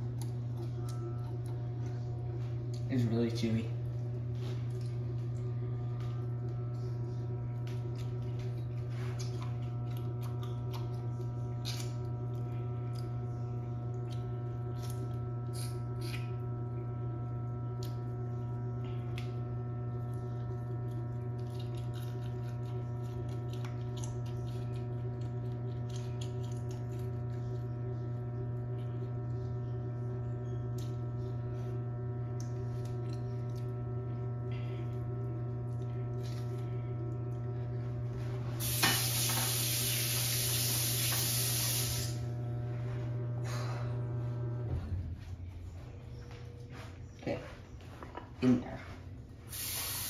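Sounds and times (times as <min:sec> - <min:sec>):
lime being bitten and chewed: 0:00.0 - 0:02.9, 0:07.6 - 0:16.6, 0:17.6 - 0:18.2, 0:19.0 - 0:27.7
electrical hum: 0:00.0 - 0:50.0.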